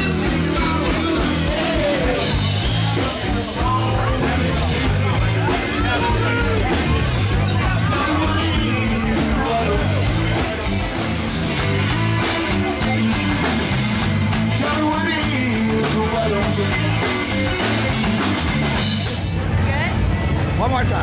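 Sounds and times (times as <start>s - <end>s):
man singing: 0.0s - 10.6s, 14.3s - 18.1s
electric guitar: 0.0s - 20.6s
bass guitar: 0.0s - 21.0s.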